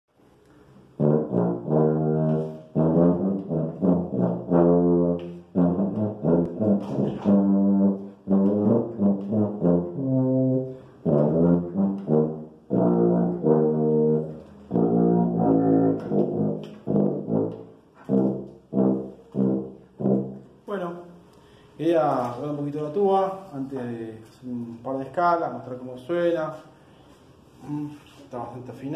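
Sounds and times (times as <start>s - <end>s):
tuba playing scales: 0.6s - 21.2s.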